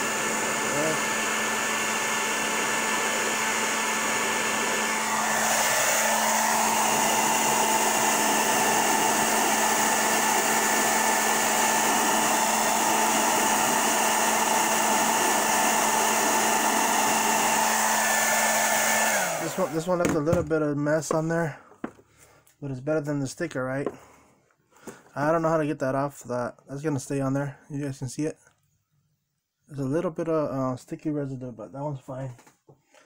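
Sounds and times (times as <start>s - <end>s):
hair dryer blowing: 0.0s - 20.5s.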